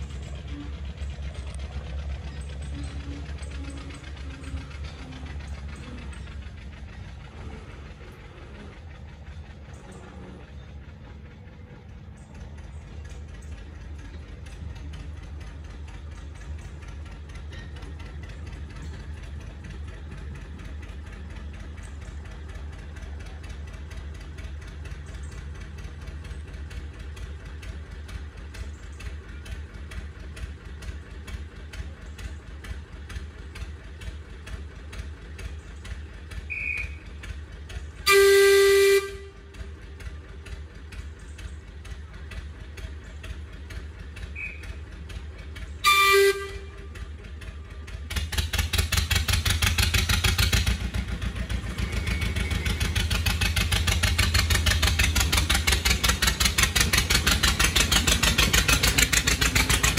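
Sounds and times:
diesel locomotive engine running: 0:00.0 - 0:59.9
locomotive horn blast: 0:36.5 - 0:37.0, 0:38.0 - 0:39.6, 0:45.8 - 0:47.2.

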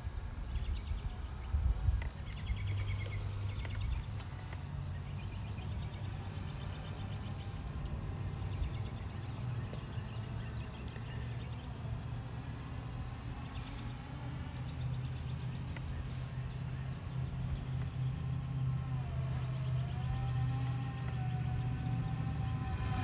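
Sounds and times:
drone propellers humming: 0:00.0 - 0:23.0.

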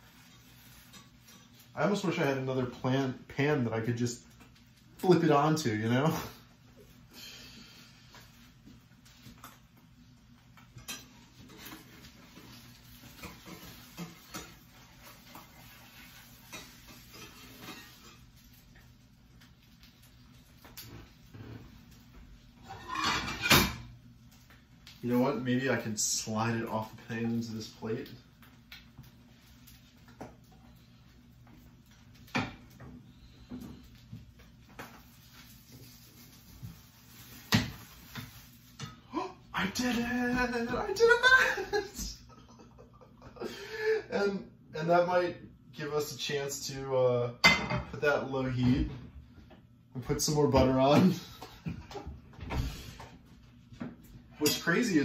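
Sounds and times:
spatula scraping a frying pan: 0:00.0 - 0:01.7, 0:10.7 - 0:18.6, 0:22.6 - 0:23.8.

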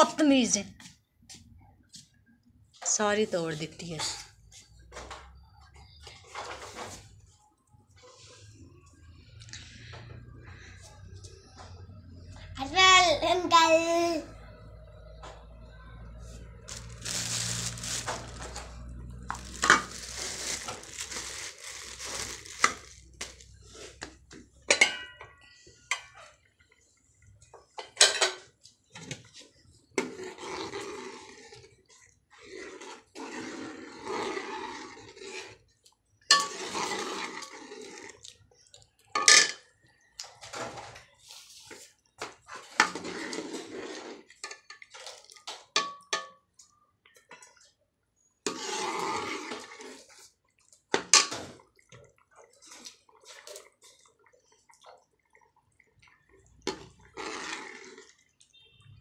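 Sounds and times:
ladle scraping metal pot: 0:16.2 - 0:25.1, 0:30.0 - 0:35.7, 0:36.3 - 0:38.2, 0:42.4 - 0:45.2, 0:48.4 - 0:50.2, 0:56.6 - 0:58.3.

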